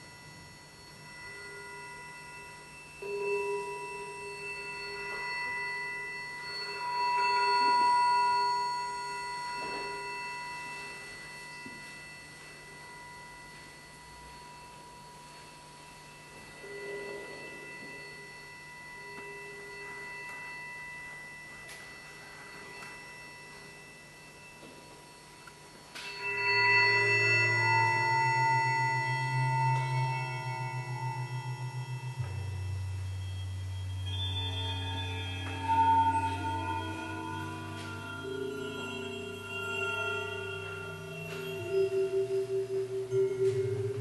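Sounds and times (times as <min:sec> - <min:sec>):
low electronic tone: 0:26.0 - 0:44.0.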